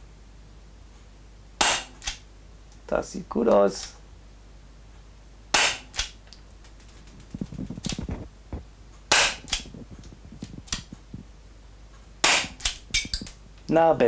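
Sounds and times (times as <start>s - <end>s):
airsoft pistol pops: 5.6s - 6.2s, 9.1s - 9.7s, 12.2s - 13.4s.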